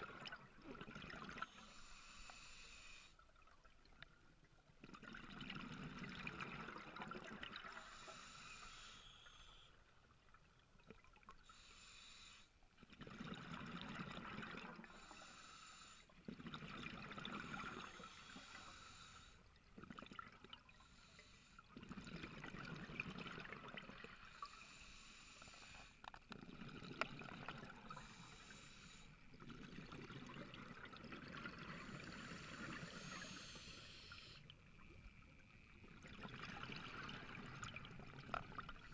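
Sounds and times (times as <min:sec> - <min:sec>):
exhaled air bubbling: 0:00.0 - 0:01.8, 0:03.2 - 0:08.3, 0:12.8 - 0:15.2, 0:16.2 - 0:24.8, 0:25.6 - 0:38.9
regulator inhalation hiss: 0:01.6 - 0:03.1, 0:07.7 - 0:09.7, 0:11.5 - 0:12.5, 0:14.9 - 0:16.1, 0:17.9 - 0:19.4, 0:24.4 - 0:26.0, 0:28.0 - 0:29.1, 0:32.1 - 0:34.4.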